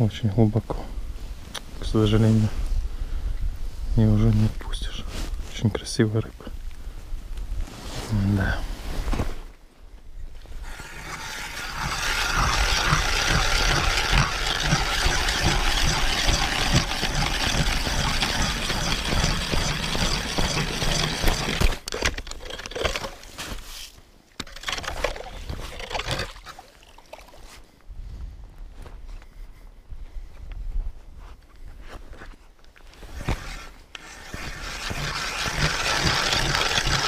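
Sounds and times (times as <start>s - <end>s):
ice auger grinding through ice: 10.6s - 23.5s, 24.4s - 26.6s, 33.0s - 37.0s
knocks and scrapes: 10.6s - 26.5s, 31.7s - 37.0s.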